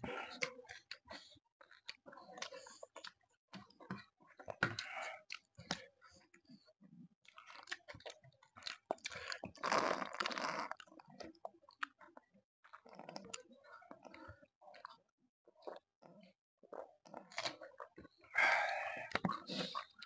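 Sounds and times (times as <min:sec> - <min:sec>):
close chewing and crunching: 0:00.0 - 0:20.0.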